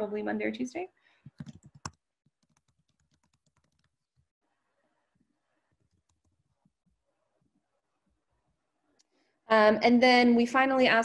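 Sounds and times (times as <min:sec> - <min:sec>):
computer keyboard typing: 0:01.3 - 0:04.3, 0:05.8 - 0:06.6.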